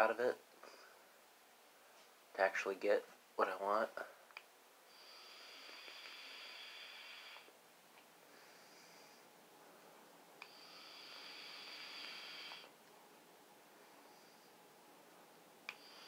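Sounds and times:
vape draw hiss: 5.1 - 7.5, 10.4 - 12.7.

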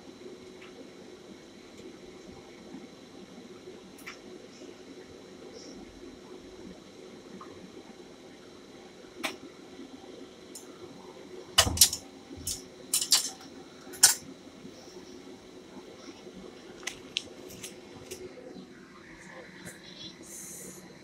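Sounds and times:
low kitchen hum: 0.0 - 21.0
utensils and dishes clinking: 11.8 - 13.4.

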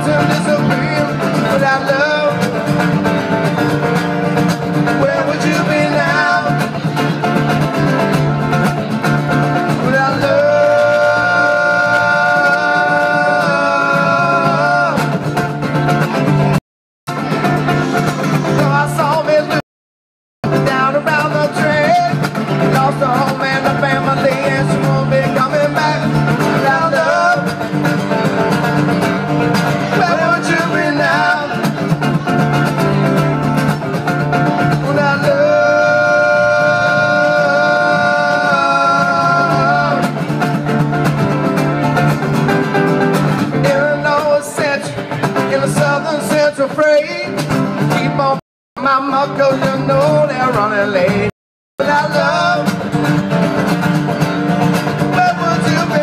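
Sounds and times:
man singing: 0.0 - 3.0, 4.7 - 7.1, 9.6 - 15.3, 18.2 - 19.6, 20.4 - 27.9, 29.5 - 32.0, 34.4 - 40.3, 43.5 - 53.3, 55.0 - 56.0
acoustic guitars strummed and picked: 0.0 - 19.6, 20.4 - 56.0.

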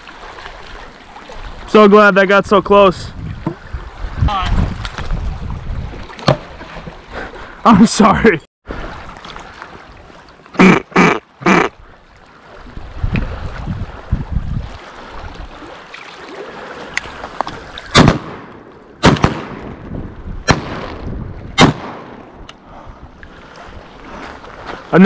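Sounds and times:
wind on microphone: 2.6 - 6.9, 12.6 - 15.7, 19.5 - 24.9
water lapping on rocks: 8.7 - 18.0
shotgun shots: 18.0 - 19.8, 20.5 - 21.0, 21.6 - 22.2.

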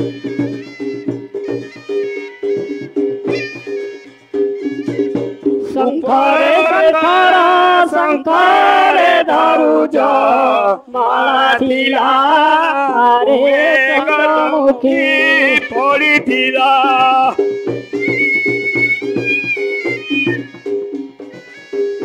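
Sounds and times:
person singing: 5.6 - 17.5
instrument drone: 17.3 - 22.0.

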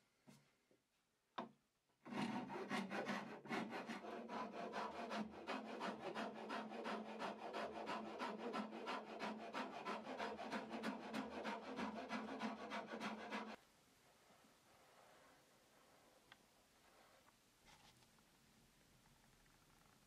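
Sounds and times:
file rasping on wood: 2.1 - 13.6.

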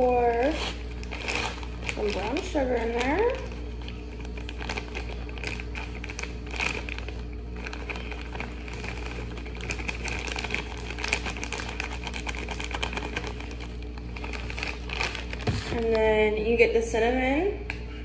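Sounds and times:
plastic bag crinkling: 0.0 - 16.6.

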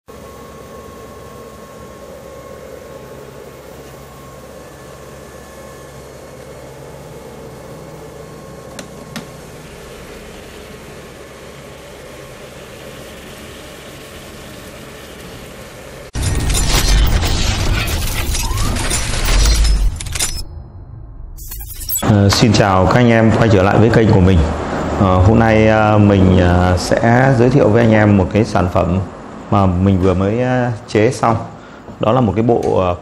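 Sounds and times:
electrical equipment hum and hiss: 22.0 - 33.0.

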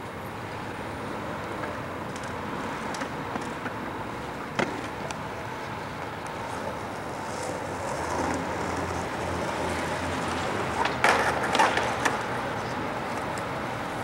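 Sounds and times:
skateboard wheels rolling on asphalt: 0.0 - 14.0
skateboard clacks and scrapes: 1.5 - 5.1, 6.4 - 13.5.

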